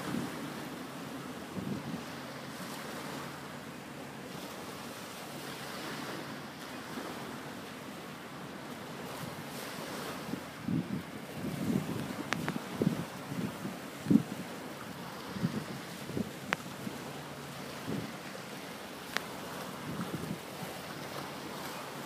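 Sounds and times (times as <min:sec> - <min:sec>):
wind rumbling on microphone: 0:00.0 - 0:03.2, 0:08.6 - 0:22.0
waves washing over pebbles: 0:00.0 - 0:03.5, 0:04.3 - 0:22.0.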